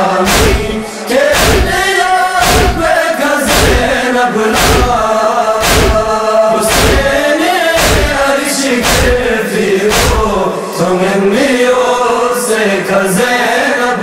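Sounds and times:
men chanting a lament: 0:00.0 - 0:14.0
heavy rhythmic thumps: 0:00.2 - 0:02.9, 0:03.5 - 0:04.0, 0:04.6 - 0:10.5.

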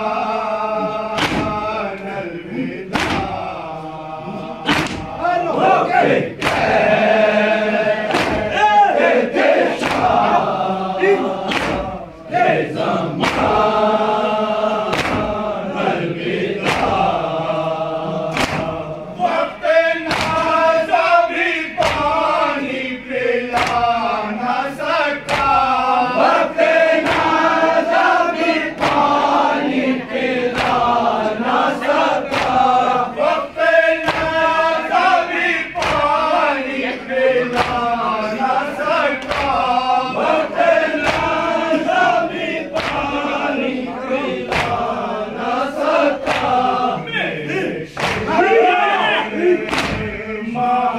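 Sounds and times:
men chanting in unison: 0:00.0 - 0:50.9
hands striking chests: 0:01.2 - 0:01.6, 0:02.9 - 0:03.4, 0:04.7 - 0:05.1, 0:08.1 - 0:08.5.

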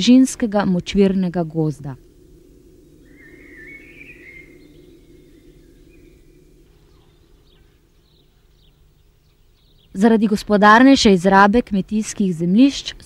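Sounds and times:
steady low hum: 0:00.0 - 0:13.0
faint bird chirps: 0:01.4 - 0:11.2
bird whistled call: 0:02.9 - 0:10.0.

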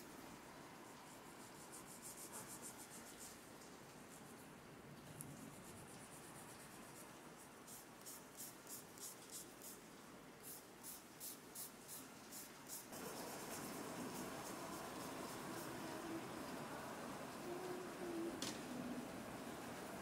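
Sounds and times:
steady hiss: 0:00.0 - 0:20.0
nail file scratching nail tip: 0:07.6 - 0:09.8.

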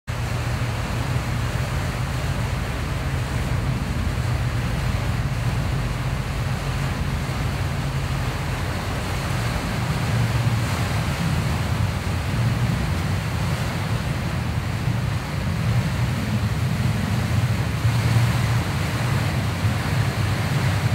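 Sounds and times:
boat engine droning: 0:00.1 - 0:20.9
storm wind and rain: 0:00.1 - 0:20.9.

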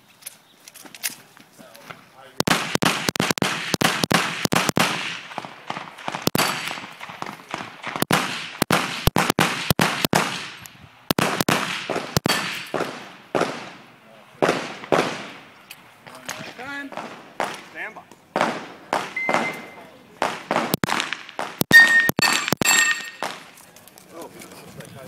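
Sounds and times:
pistol shots with echo: 0:02.4 - 0:15.5, 0:16.9 - 0:17.7, 0:18.3 - 0:23.5.

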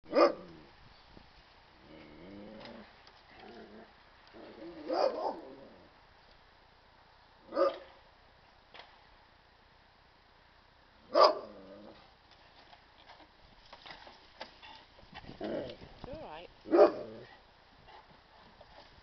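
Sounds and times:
dog barking: 0:00.1 - 0:00.4, 0:04.9 - 0:05.4, 0:07.5 - 0:07.9, 0:11.1 - 0:11.5, 0:16.7 - 0:17.2.

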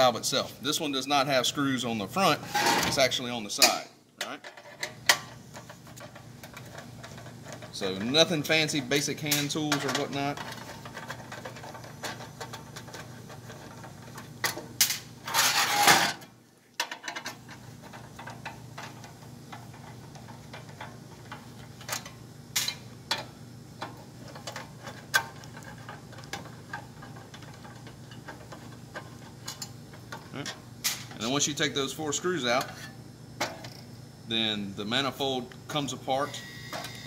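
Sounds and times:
steady low hum: 0:00.0 - 0:37.0
metal scraping: 0:02.4 - 0:03.1, 0:15.2 - 0:16.2.

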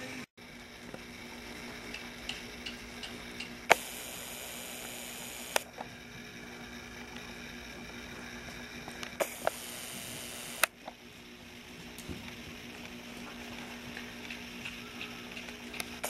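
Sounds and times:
sharp clicks: 0:01.9 - 0:05.8, 0:09.0 - 0:10.8
hiss: 0:03.7 - 0:05.6, 0:09.2 - 0:10.7.

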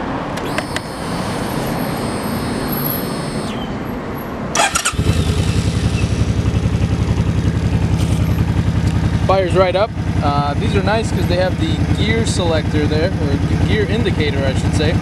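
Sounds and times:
motorcycle starter cranking: 0:00.4 - 0:09.2
motorcycle engine idling: 0:04.6 - 0:15.0.

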